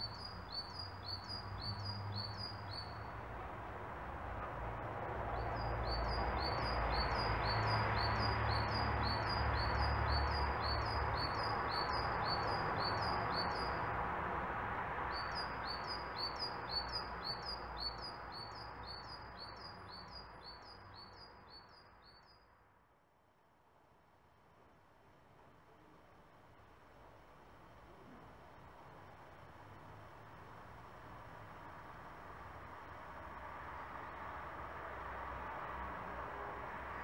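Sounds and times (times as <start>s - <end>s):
songbird chirping: 0.0s - 3.2s, 15.1s - 22.4s.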